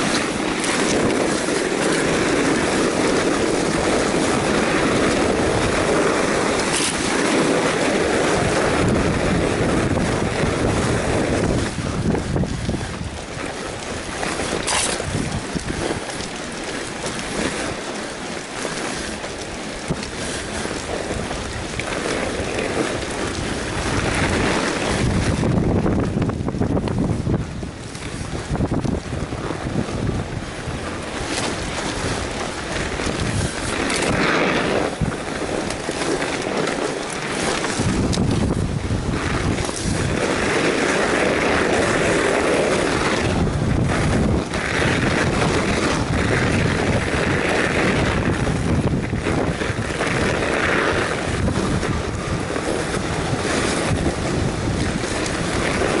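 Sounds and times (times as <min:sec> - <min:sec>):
bike tyres rolling on snow: 0:00.0 - 0:56.0
wind rushing over microphone: 0:00.0 - 0:56.0.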